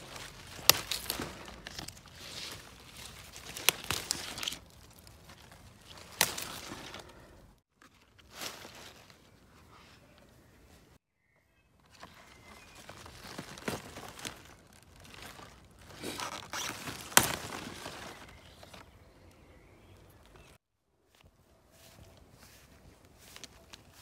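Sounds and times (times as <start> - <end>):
stems snapping: 0.0 - 7.2, 13.0 - 19.4
leaves rustling: 0.0 - 10.7, 11.8 - 20.6, 21.2 - 24.0.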